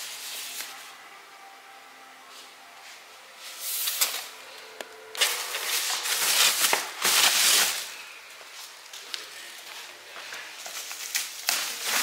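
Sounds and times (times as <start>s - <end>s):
plastic wrapping crinkling: 5.1s - 12.0s.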